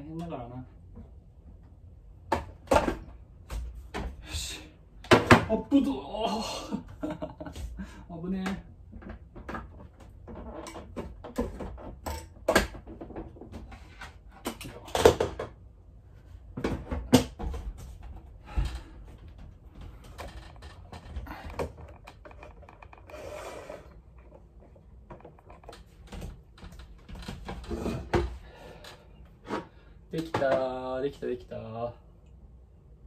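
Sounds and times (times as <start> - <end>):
kitchen objects clattering: 19.9 - 28.3.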